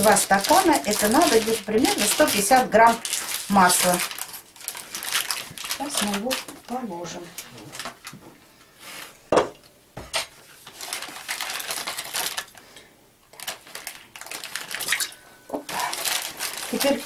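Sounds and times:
plastic wrap crinkling: 0.0s - 8.2s, 10.1s - 12.7s, 13.3s - 17.0s.

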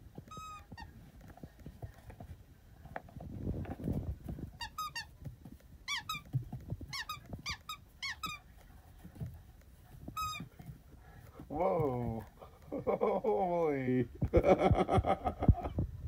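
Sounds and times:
squeaky toy squeaks: 0.2s - 0.9s, 4.6s - 5.2s, 5.8s - 8.4s, 10.1s - 10.5s.

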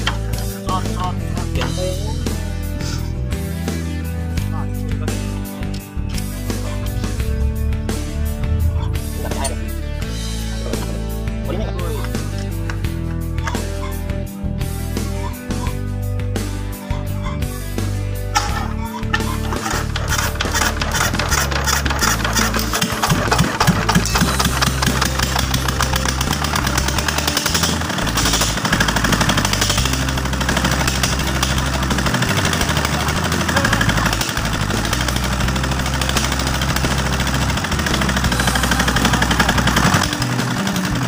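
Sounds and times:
diesel engine knocking: 18.4s - 41.0s.

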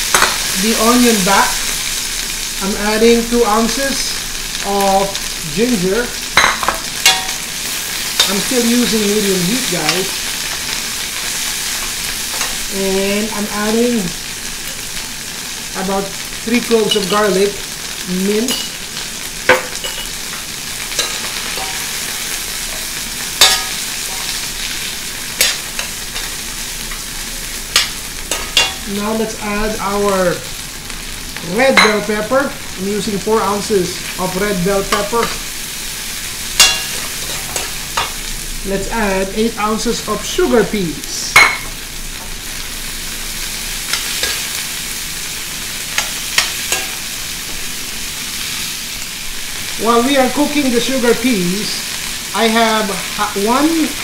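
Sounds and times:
food sizzling in a wok: 0.0s - 54.0s
metal spatula clinking on pan: 20.9s - 21.8s, 23.4s - 24.3s, 27.7s - 28.8s, 36.6s - 38.1s.

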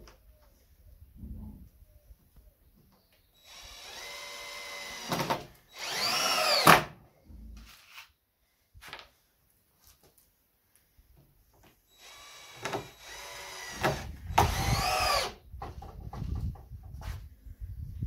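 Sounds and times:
cordless drill motor whine: 3.4s - 6.7s, 11.9s - 15.4s
drill clicks: 3.5s - 6.7s, 12.0s - 15.4s.

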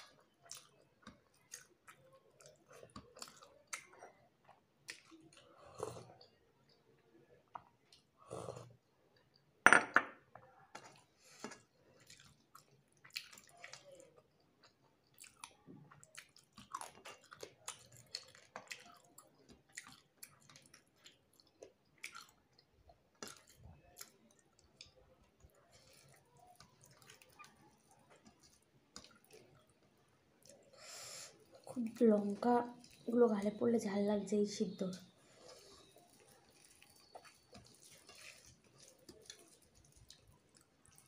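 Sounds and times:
chewing and lip-smacking: 0.0s - 6.8s, 10.7s - 33.1s, 35.2s - 41.0s
fingers squelching rice and curry: 35.2s - 41.0s.

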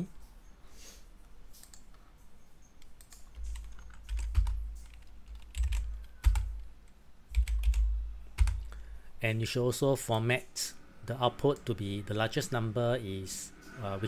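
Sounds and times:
computer keyboard typing: 1.6s - 2.0s, 2.8s - 8.8s.

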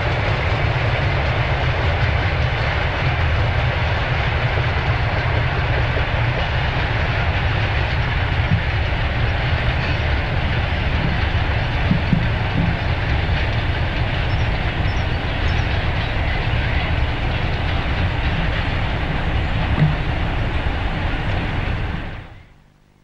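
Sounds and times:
clickety-clack over rail joints: 0.0s - 22.4s
train wheels rumbling on track: 0.0s - 22.6s.

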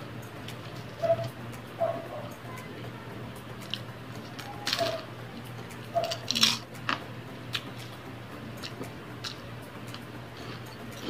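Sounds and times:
crunching and chewing: 3.6s - 8.0s, 8.6s - 11.0s.

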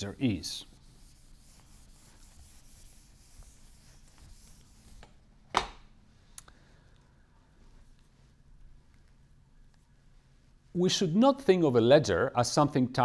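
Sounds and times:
eraser rubbing whiteboard: 0.0s - 5.1s.

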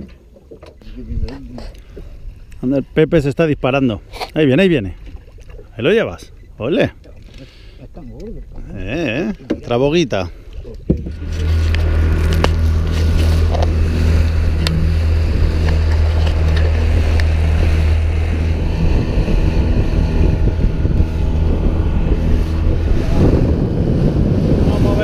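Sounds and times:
boat motor droning: 0.0s - 25.0s
wake rushing water: 8.4s - 25.0s
wind on microphone: 10.8s - 25.0s.

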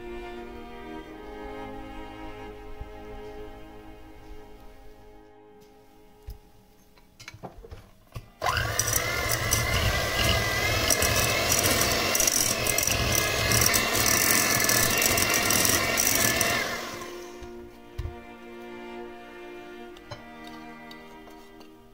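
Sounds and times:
electric hand mixer motor whining: 8.4s - 17.6s
beaters rattling against bowl: 8.8s - 16.6s.

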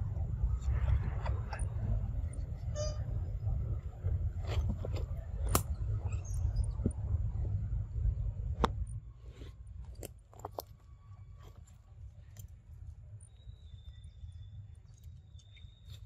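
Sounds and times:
low rumble: 0.0s - 10.0s.

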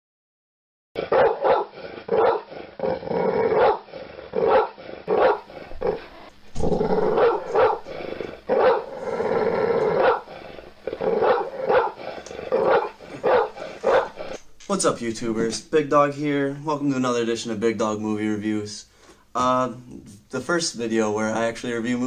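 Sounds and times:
dog barking: 1.0s - 2.5s, 3.5s - 6.0s, 7.1s - 7.9s, 8.5s - 8.9s, 9.9s - 10.3s, 11.2s - 14.4s
dog growling: 1.0s - 14.6s.

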